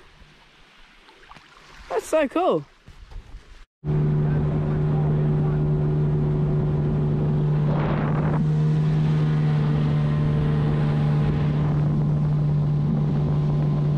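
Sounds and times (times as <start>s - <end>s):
outboard motor droning: 3.8s - 13.9s
wind on microphone: 5.7s - 13.9s.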